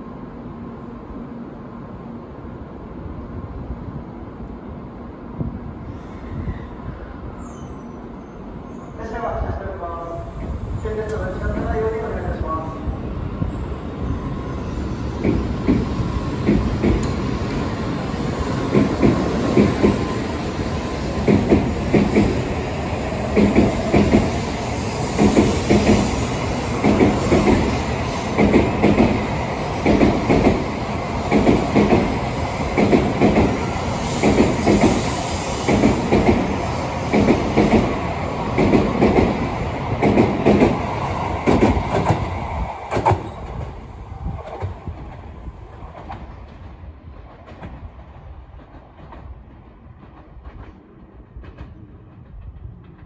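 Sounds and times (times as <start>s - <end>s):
distant train rumble: 8.0s - 53.0s
train wheels clattering: 21.2s - 22.5s, 23.2s - 39.4s.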